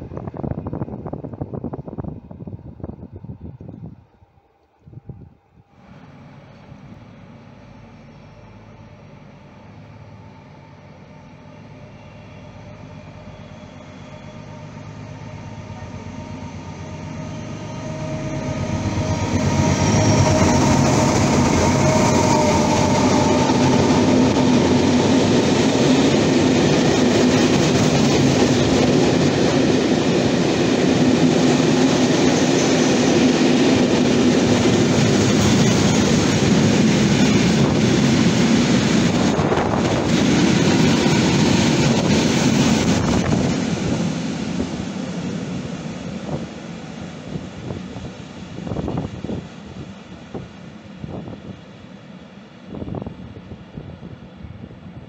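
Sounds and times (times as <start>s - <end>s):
freight train passing: 0.0s - 55.0s
wheels rattling on rail: 15.6s - 51.4s.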